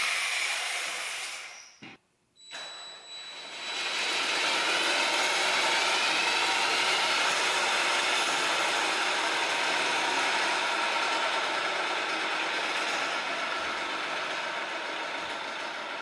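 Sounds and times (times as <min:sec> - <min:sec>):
cordless drill whine: 0:02.5 - 0:09.5.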